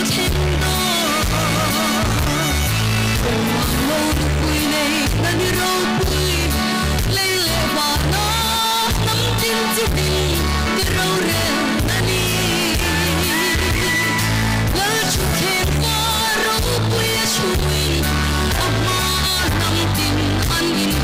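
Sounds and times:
band accompaniment: 0:00.0 - 0:21.0
repeating bass line: 0:00.0 - 0:21.0
woman singing gospel: 0:00.0 - 0:21.0.

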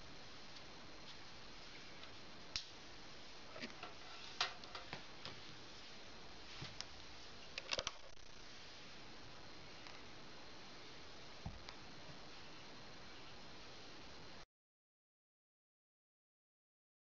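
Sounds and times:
low steady hiss: 0:00.0 - 0:14.5
small clicks and ticks: 0:07.6 - 0:08.2.

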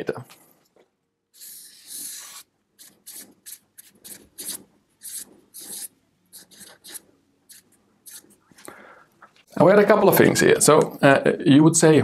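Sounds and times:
marker scratching on paper: 0:01.4 - 0:08.4.

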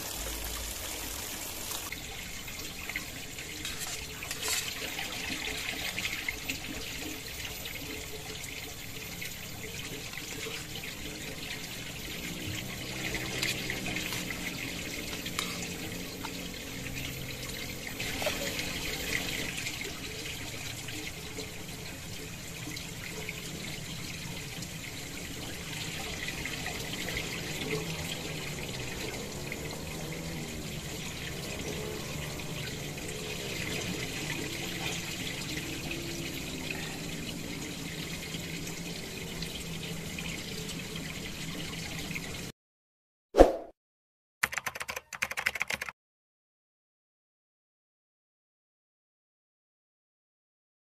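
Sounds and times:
running water: 0:00.0 - 0:42.5
metal utensils clinking: 0:03.6 - 0:04.9.

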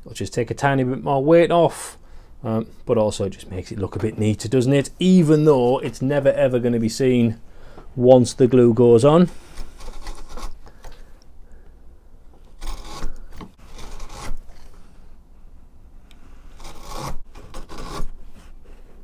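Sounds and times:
chisel scraping wood: 0:09.5 - 0:10.6, 0:12.5 - 0:14.7, 0:16.5 - 0:18.6.

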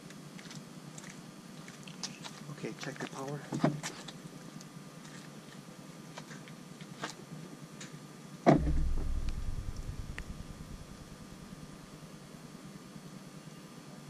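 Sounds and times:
heavy thump: 0:08.5 - 0:11.9
low rumble: 0:08.5 - 0:12.2.

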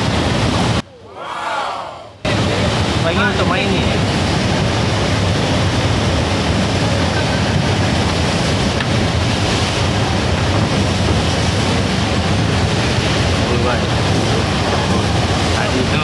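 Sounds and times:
pumped water rushing and spraying: 0:00.0 - 0:00.8, 0:02.2 - 0:16.0.

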